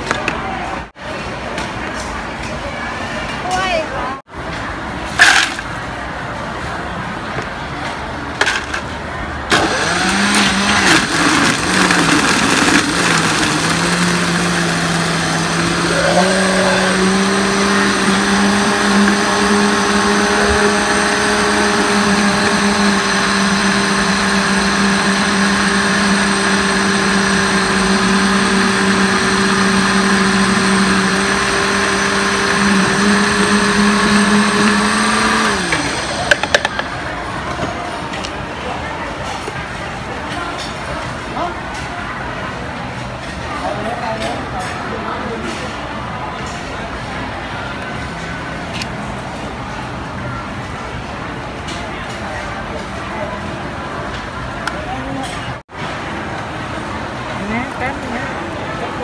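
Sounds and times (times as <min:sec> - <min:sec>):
blender crushing ice: 0:09.5 - 0:36.8.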